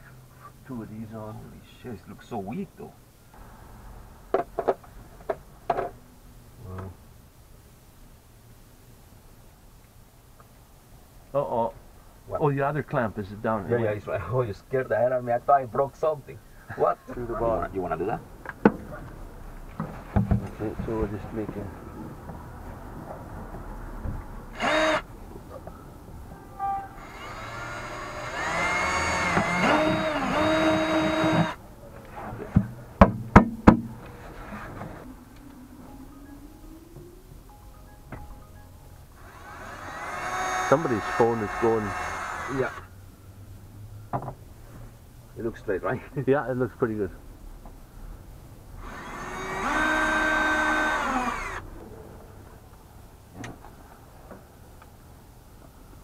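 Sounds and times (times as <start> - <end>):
cordless drill running: 24.5 - 25.0, 27.0 - 31.6, 39.2 - 42.8, 48.8 - 51.6
sharp knocks: 32.6 - 34.0.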